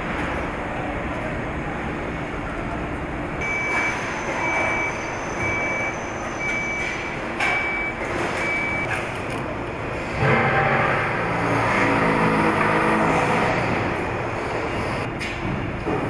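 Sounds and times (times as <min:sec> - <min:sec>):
machinery hum: 0:00.0 - 0:16.0
electronic warning beeper: 0:03.4 - 0:08.9.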